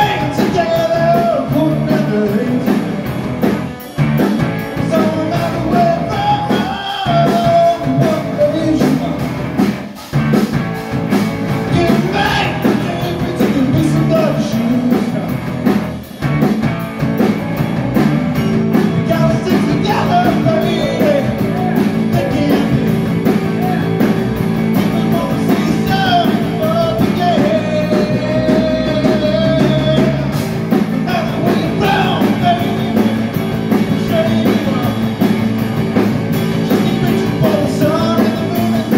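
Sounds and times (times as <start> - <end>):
man singing into a microphone: 0.0 - 3.0, 4.8 - 9.3, 11.7 - 15.4, 18.8 - 24.1, 24.7 - 35.3, 36.6 - 38.9
drum kit: 0.0 - 38.9
electric guitar through an amp: 0.0 - 38.9.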